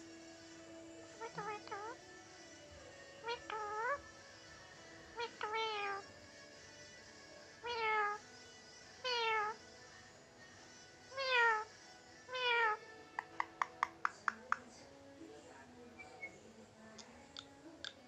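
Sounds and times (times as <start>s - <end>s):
parakeet mimicking cat meows: 1.2s - 2.0s, 3.2s - 4.0s, 5.1s - 6.2s, 7.5s - 9.7s, 11.0s - 13.9s.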